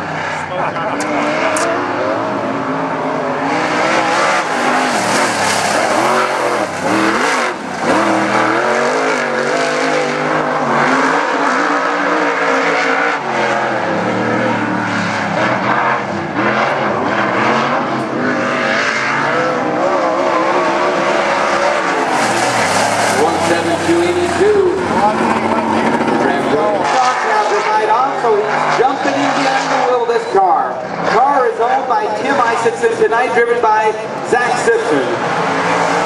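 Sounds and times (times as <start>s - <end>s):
race car engine running hard: 0.0s - 36.0s.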